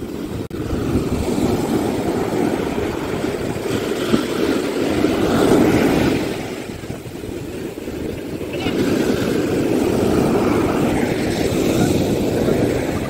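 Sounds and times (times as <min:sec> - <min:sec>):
sea waves breaking: 0:00.0 - 0:13.0
surf rushing up sand: 0:00.0 - 0:13.0
wind on microphone: 0:00.0 - 0:13.0.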